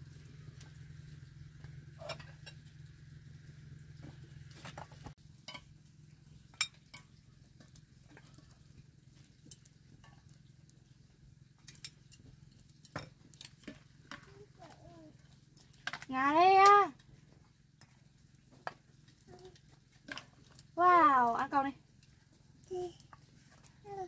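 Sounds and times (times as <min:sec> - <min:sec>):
steady low hum: 0:00.0 - 0:23.7
bowls and spoons clinking: 0:02.0 - 0:02.7.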